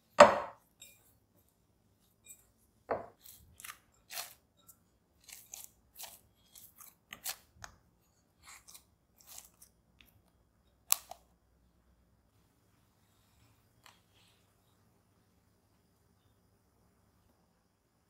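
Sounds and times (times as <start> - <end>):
knock on glass bowl: 0.2 - 0.6.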